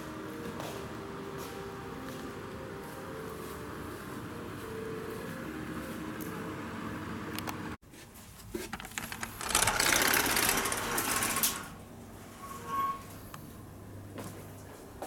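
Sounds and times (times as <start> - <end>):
sliding glass door rattling open: 8.9 - 11.8.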